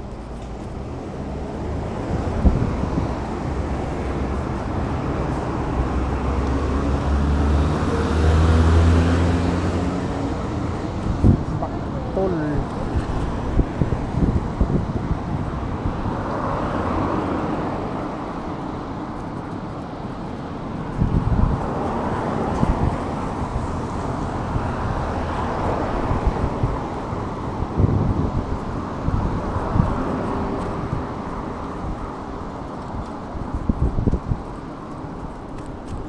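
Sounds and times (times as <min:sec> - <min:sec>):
street traffic: 0:00.0 - 0:36.0
wind rushing over microphone: 0:00.0 - 0:36.0.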